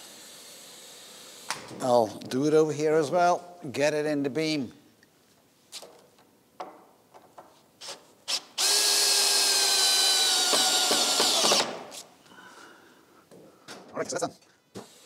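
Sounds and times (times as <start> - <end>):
power drill drilling into wood: 8.3 - 11.8.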